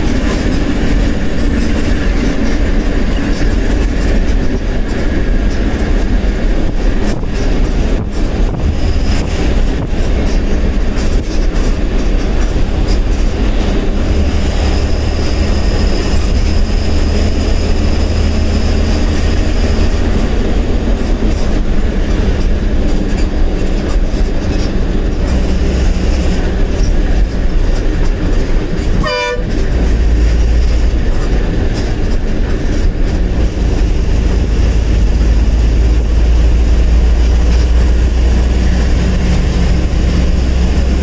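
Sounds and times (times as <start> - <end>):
bus engine drone: 0.0 - 41.0
horn blast: 29.0 - 29.6.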